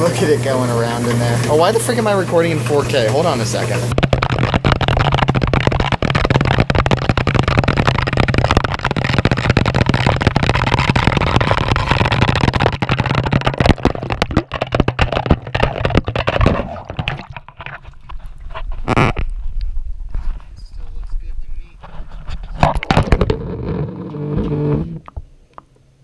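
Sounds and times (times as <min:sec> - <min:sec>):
washing machine spin cycle rattling: 0:00.0 - 0:04.0.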